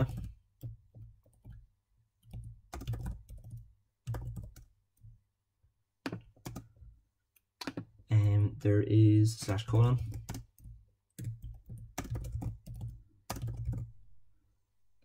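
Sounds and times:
keyboard typing: 0.0s - 5.2s, 6.0s - 6.8s, 7.4s - 8.4s, 9.4s - 13.9s.

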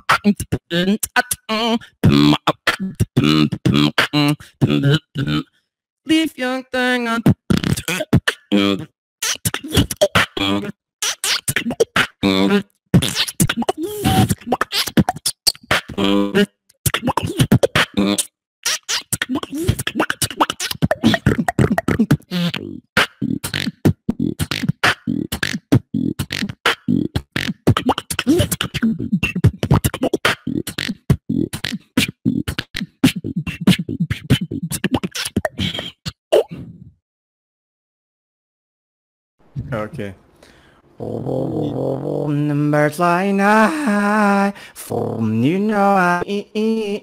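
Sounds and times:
person humming short phrases: 0.0s - 5.4s, 7.1s - 15.2s, 15.8s - 36.9s, 41.0s - 47.0s
person beatboxing: 0.0s - 5.5s, 7.2s - 36.9s.

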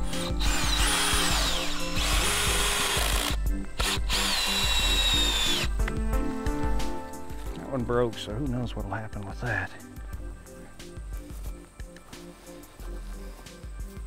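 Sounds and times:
power drill whining: 0.0s - 5.8s.

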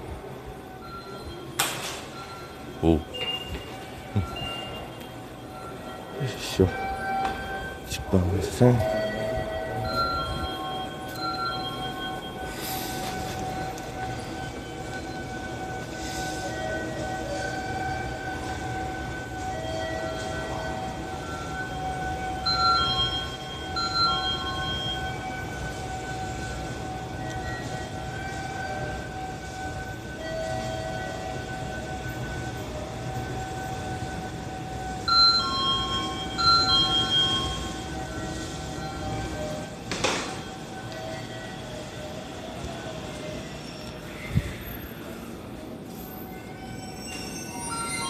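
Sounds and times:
electric train whine: 0.0s - 48.0s.

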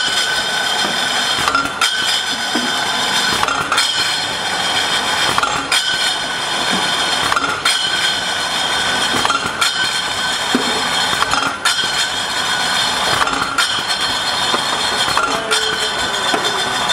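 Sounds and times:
labelling machine whirring: 0.0s - 16.9s
glass bottles clinking: 8.8s - 16.9s.

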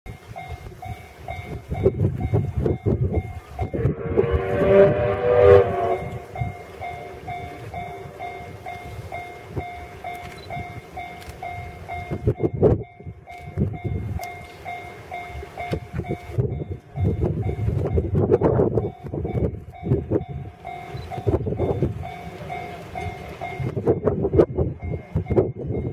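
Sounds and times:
pulsing bell-like tone: 0.1s - 25.9s
wind rumbling on microphone: 0.1s - 25.9s
steam whistle blast: 3.6s - 8.6s.

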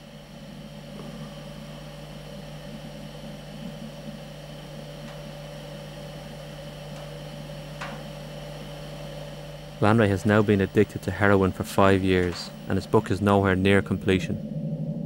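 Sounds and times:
constant hiss: 0.0s - 14.5s
low hum: 0.0s - 15.0s.

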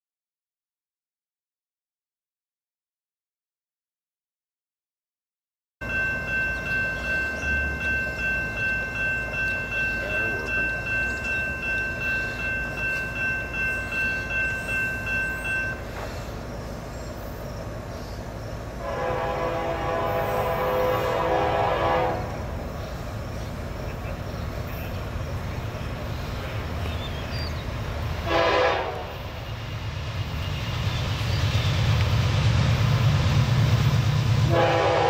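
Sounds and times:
crossing warning bell ringing: 5.8s - 16.2s, 23.8s - 29.6s
train horn: 18.8s - 22.5s, 28.2s - 29.5s, 34.4s - 35.0s.

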